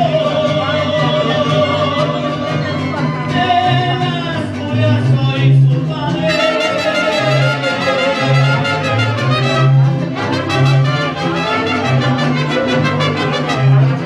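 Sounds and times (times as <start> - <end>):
trumpets playing tune: 6.3 - 14.0.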